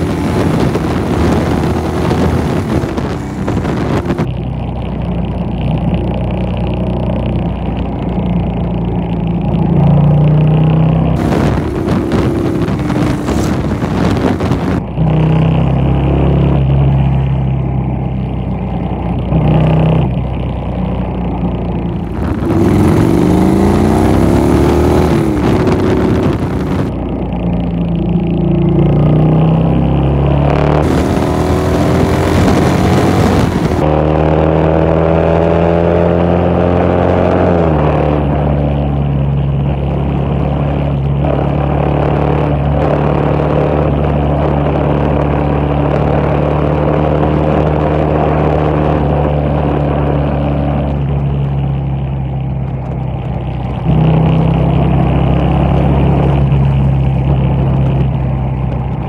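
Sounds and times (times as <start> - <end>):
wind noise on microphone: 0.0 - 4.4, 10.8 - 17.8, 21.0 - 59.0
motorcycle engine at highway speed: 0.0 - 59.0.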